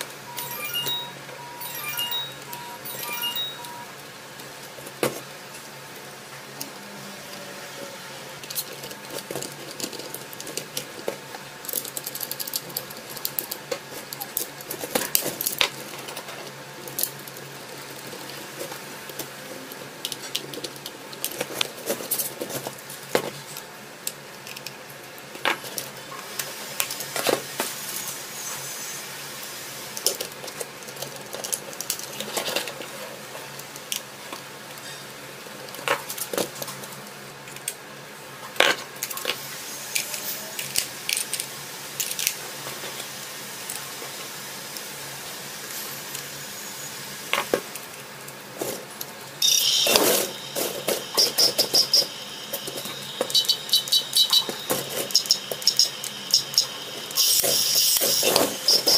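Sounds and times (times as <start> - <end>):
plastic toy parts clicking: 8.4 - 23.2, 24.0 - 25.9, 30.0 - 32.9, 40.0 - 42.4
steady hiss: 49.4 - 58.9.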